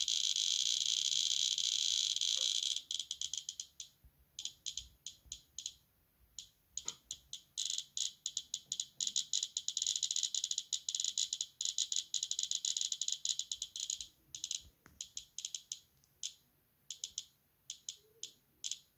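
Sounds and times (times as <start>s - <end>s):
radiation detector clicking: 0.0s - 5.8s, 6.4s - 18.9s.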